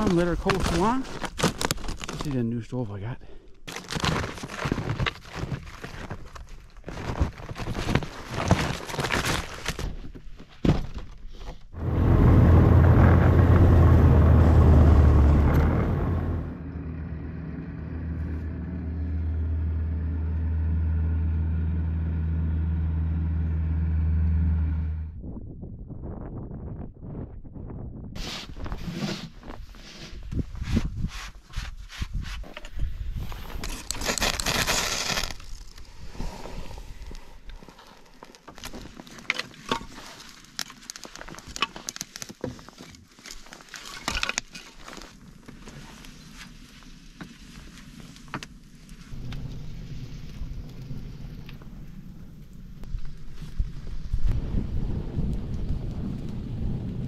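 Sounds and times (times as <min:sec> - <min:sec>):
tractor engine droning: 0:11.8 - 0:25.1
fire crackling and snapping: 0:33.3 - 0:42.4, 0:43.2 - 0:57.0.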